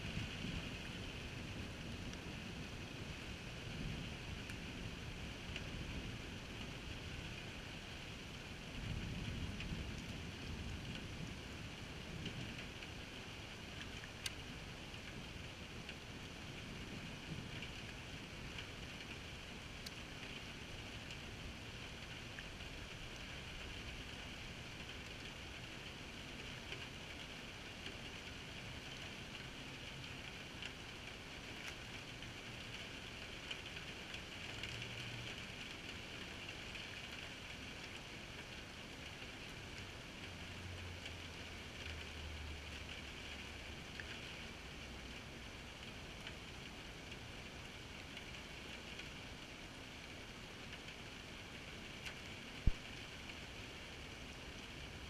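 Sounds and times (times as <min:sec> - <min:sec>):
rain falling on puddles: 0:00.0 - 0:55.0
single raindrop ticks: 0:13.7 - 0:15.2, 0:19.8 - 0:20.4, 0:52.0 - 0:53.5.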